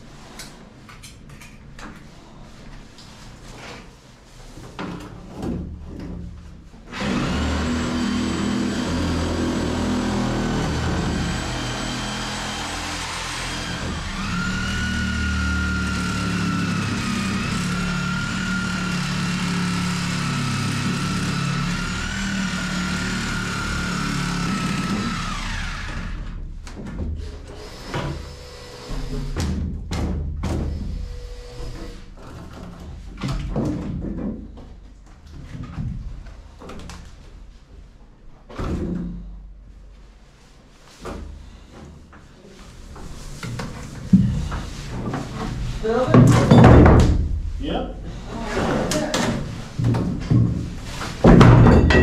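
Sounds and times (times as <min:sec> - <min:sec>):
reciprocating saw cutting wood: 0:07.0 - 0:26.2.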